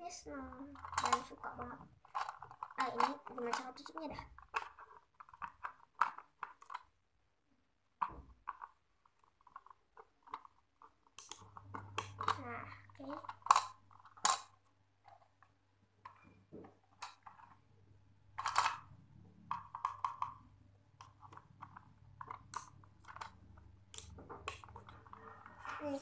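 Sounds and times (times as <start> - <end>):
plastic toy clicks and snaps: 11.2 - 12.4, 13.1 - 14.5, 23.9 - 24.8.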